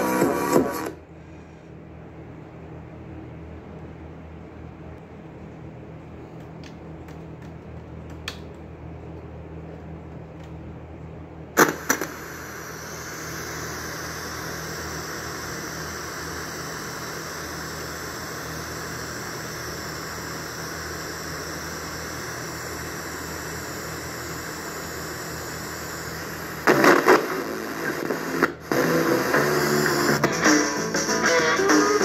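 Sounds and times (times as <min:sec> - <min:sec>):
radio static hiss: 0:00.0 - 0:01.2, 0:11.6 - 0:32.0.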